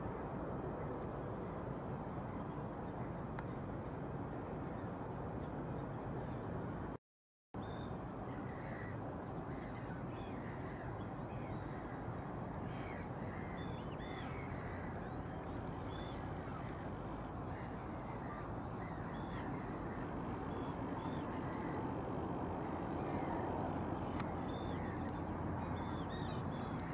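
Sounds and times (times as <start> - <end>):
birds calling: 9.5 - 26.9
low background rumble: 9.5 - 26.9.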